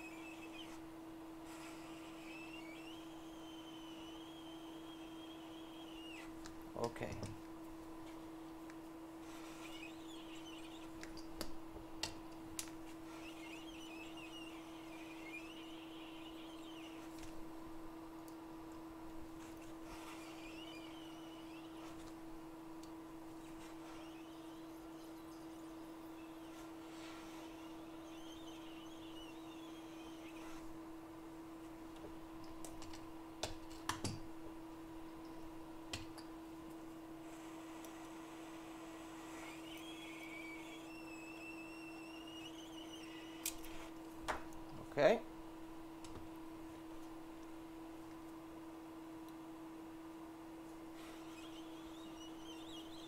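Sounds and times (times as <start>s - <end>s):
faint high chirps: 0.0s - 0.9s, 1.6s - 7.1s, 9.2s - 11.4s, 13.0s - 17.5s, 19.4s - 22.2s, 23.4s - 30.8s, 37.3s - 43.9s, 51.0s - 53.0s
steady electrical hum: 0.0s - 53.0s.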